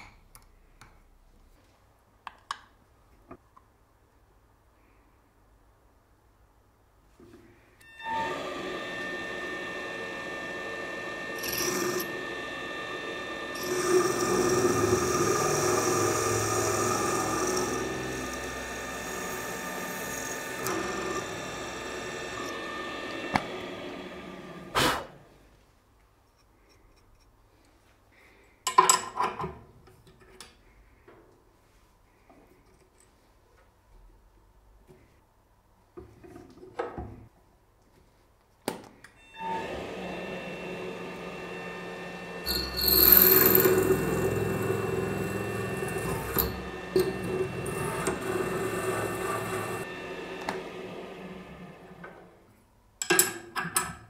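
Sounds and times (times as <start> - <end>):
drill press motor whine: 7.8 - 24.7, 39.2 - 52.5
cutter grinding into steel: 7.9 - 24.7, 39.4 - 51.6.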